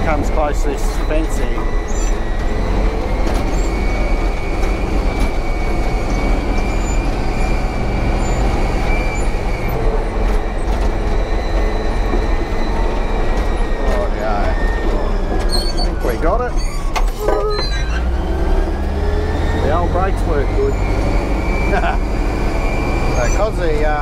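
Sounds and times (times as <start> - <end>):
tracks clattering: 0.0 - 17.5
diesel engine running: 0.0 - 24.0.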